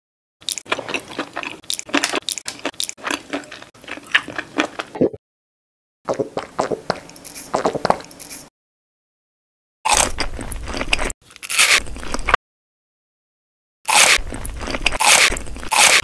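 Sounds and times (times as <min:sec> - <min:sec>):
chewing flatbread: 0:00.4 - 0:05.0.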